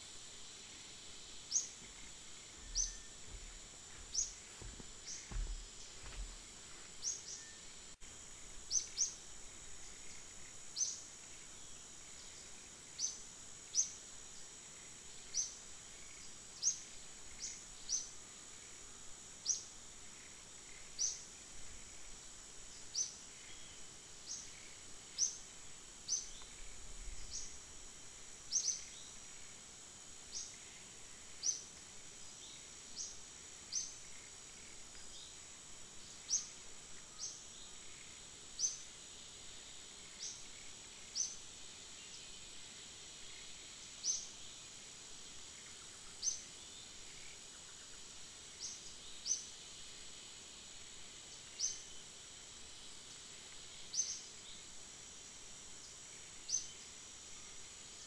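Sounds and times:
insects droning: 0:00.0 - 0:58.0
bird chirping: 0:01.5 - 0:04.4.

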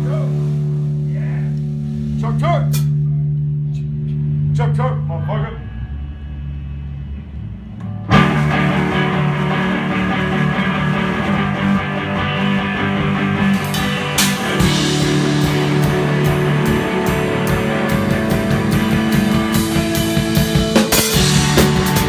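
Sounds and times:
drum kit cymbal hits: 0:00.0 - 0:03.2, 0:12.6 - 0:22.0
amplified electric guitars: 0:00.0 - 0:22.0.

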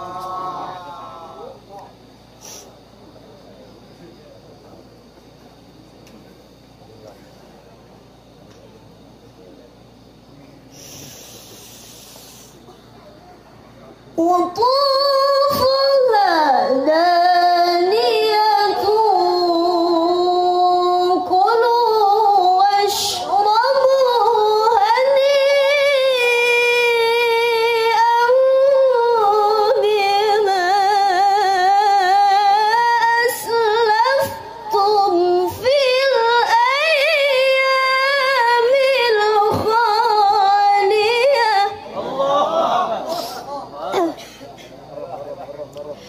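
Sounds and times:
woman reciting melodically: 0:14.1 - 0:42.0.

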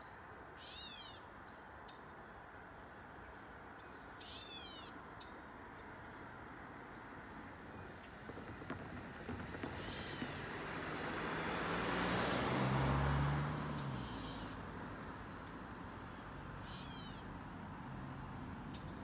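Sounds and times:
car driving past: 0:07.8 - 0:19.0
bird descending calls: 0:09.7 - 0:10.5, 0:13.9 - 0:14.6.

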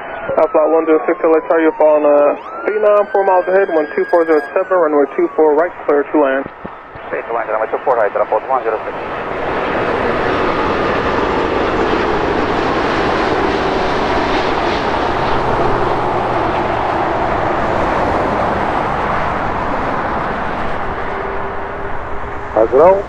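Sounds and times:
jet airliner landing roar: 0:00.0 - 0:23.0.

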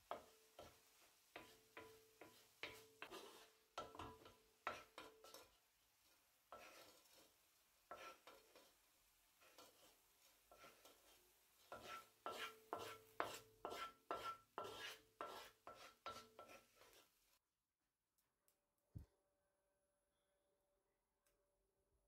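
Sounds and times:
wooden spoon scraping frying pan: 0:00.0 - 0:17.2.

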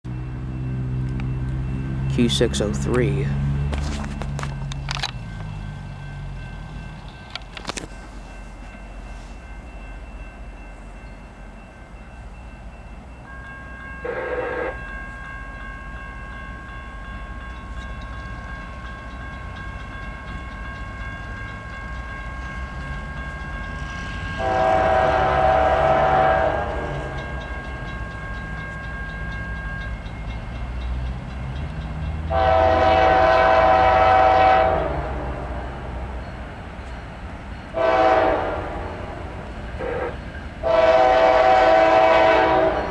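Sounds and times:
locomotive air horn blasts: 0:24.3 - 0:27.0, 0:32.3 - 0:35.1, 0:37.8 - 0:38.9, 0:39.8 - 0:42.9.

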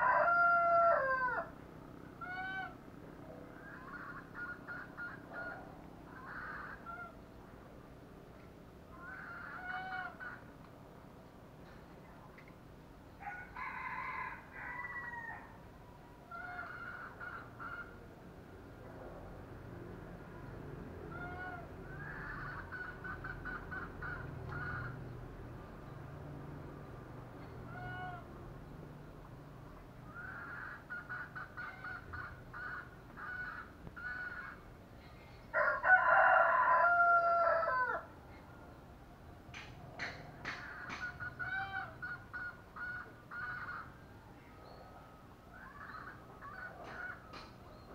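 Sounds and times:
rooster crowing: 0:00.0 - 0:01.6, 0:13.2 - 0:15.7, 0:35.5 - 0:38.2
chickens clucking: 0:21.1 - 0:25.1, 0:30.2 - 0:35.5, 0:39.5 - 0:44.1, 0:45.6 - 0:47.9.

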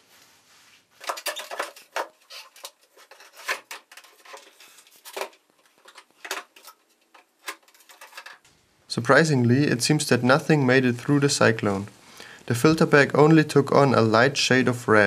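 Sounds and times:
plastic clicks and rattles: 0:01.0 - 0:08.4.

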